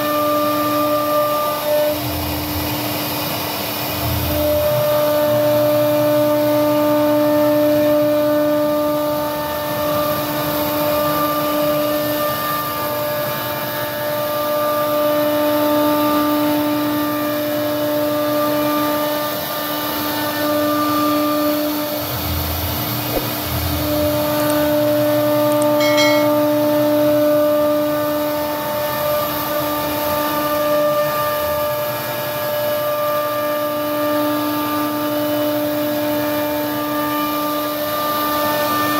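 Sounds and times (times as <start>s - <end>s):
router spindle whining: 0.0s - 38.9s.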